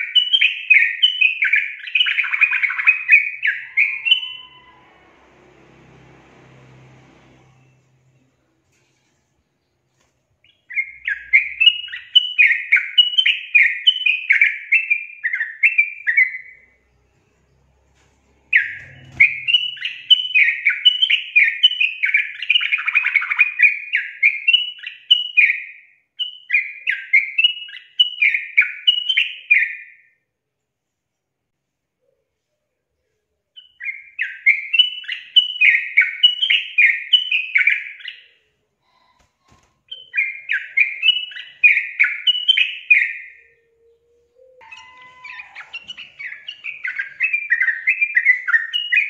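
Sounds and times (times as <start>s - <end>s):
bird warbling song: 0.0s - 5.0s, 10.4s - 16.8s, 18.3s - 30.0s, 39.8s - 49.0s.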